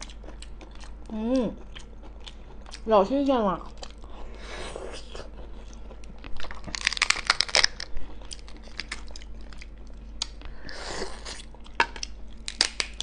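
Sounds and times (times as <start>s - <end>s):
lobster shell cracking: 6.3s - 10.4s, 11.6s - 13.0s.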